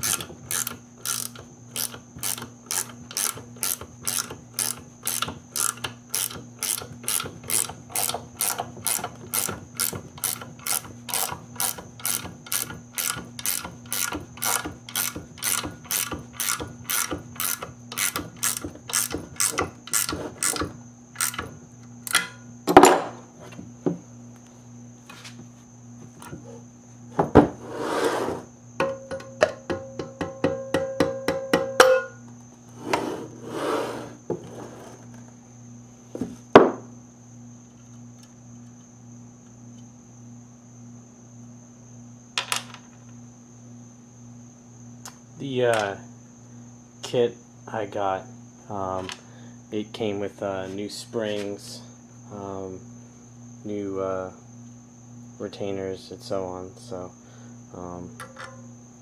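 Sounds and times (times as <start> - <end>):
ratcheting wrench clicking: 0.0 - 20.6, 21.2 - 21.5.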